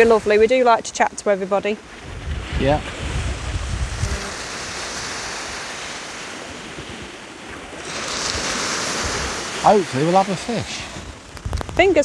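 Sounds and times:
sea surf washing on beach: 0.0 - 12.0
wind buffeting microphone: 0.0 - 12.0.

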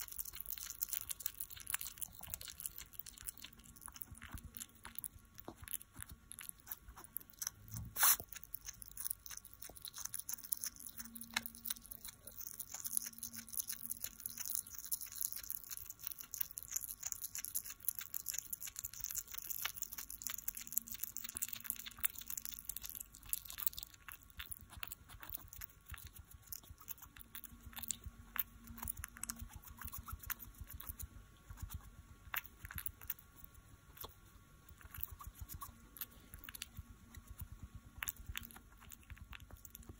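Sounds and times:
hedgehog chewing and licking: 0.0 - 39.9.

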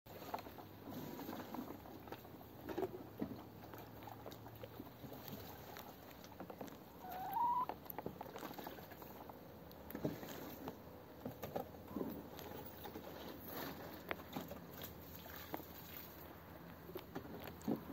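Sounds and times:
short rising bird call: 7.0 - 7.7.

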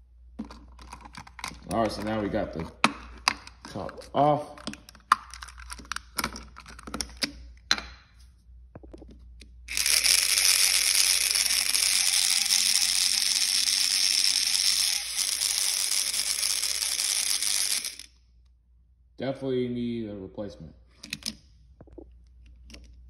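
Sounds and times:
plastic toy clicks: 9.7 - 18.1
toy electric motor whirring: 9.7 - 18.2.

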